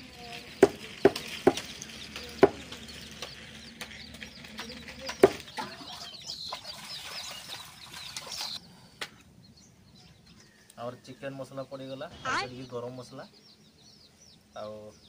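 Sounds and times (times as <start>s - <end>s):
small birds chirping: 0.0s - 15.0s
sharp knocks: 0.6s - 1.7s, 2.4s - 2.6s, 5.2s - 5.5s.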